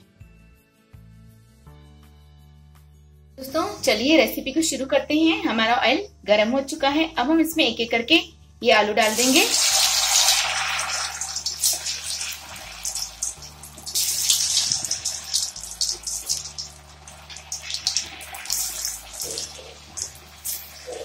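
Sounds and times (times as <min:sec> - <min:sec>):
potatoes sizzling in hot oil: 0:09.0 - 0:21.0
oil spitting: 0:09.1 - 0:21.0.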